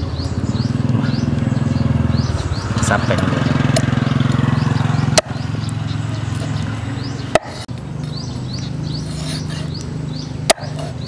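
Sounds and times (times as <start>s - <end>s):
cleaver chopping onto wooden board: 5.1s - 5.4s, 7.3s - 7.6s, 10.5s - 11.0s.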